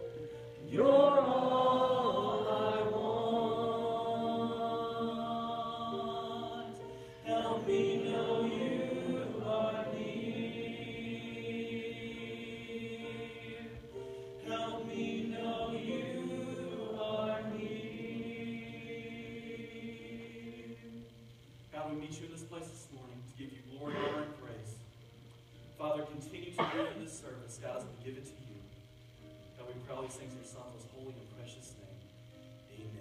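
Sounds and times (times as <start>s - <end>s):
voices singing a slow chant: 0.0s - 22.0s.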